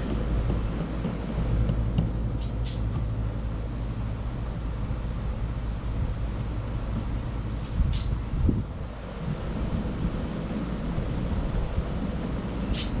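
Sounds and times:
engine humming: 0.0s - 13.0s.

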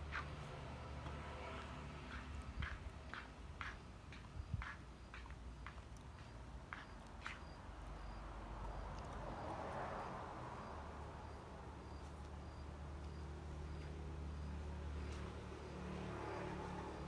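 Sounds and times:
insect chirping: 6.8s - 14.5s.

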